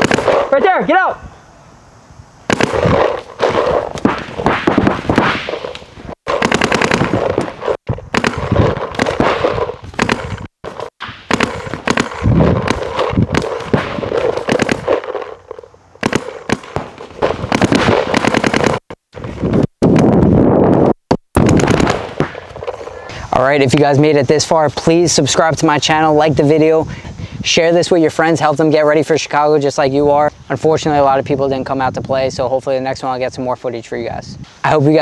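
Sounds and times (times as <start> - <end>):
paintball markers firing: 0.0 - 0.5, 2.5 - 18.9, 21.4 - 22.8.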